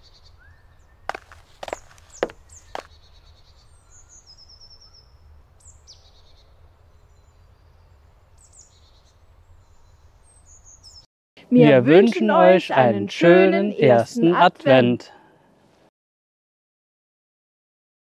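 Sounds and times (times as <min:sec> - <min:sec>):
small birds chirping: 0:00.0 - 0:11.1.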